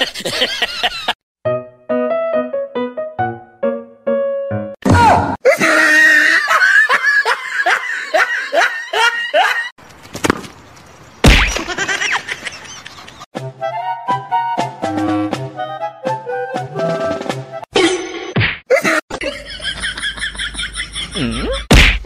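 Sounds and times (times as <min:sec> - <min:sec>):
loud laughter: 0:00.0 - 0:01.2, 0:05.4 - 0:09.8, 0:11.6 - 0:13.3, 0:18.7 - 0:21.7.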